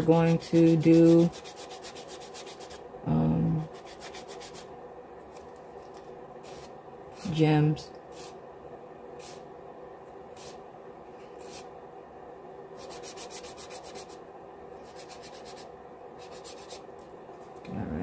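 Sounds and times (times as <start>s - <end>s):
nail file scraping nails: 0.2s - 2.8s, 3.7s - 4.7s, 12.8s - 14.2s, 14.8s - 16.8s.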